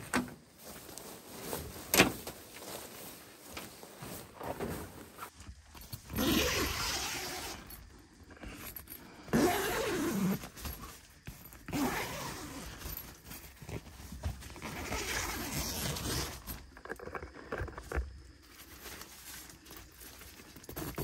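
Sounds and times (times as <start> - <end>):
tent zipper being pulled: 4.2 - 16.6, 20.5 - 21.0.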